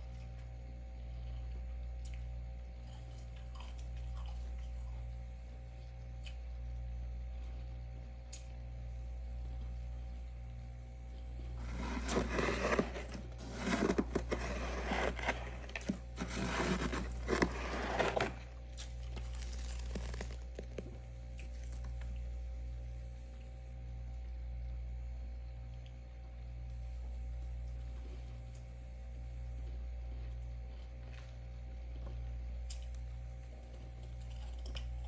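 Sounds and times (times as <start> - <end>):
steady low hum: 0.0 - 35.0
frost crunching and scraping: 11.3 - 22.2.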